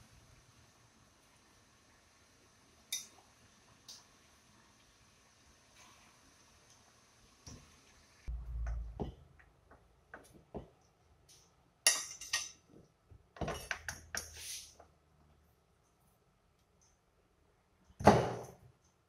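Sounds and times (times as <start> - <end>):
faint hiss of hot water pan: 0.0 - 8.3, 14.2 - 14.8.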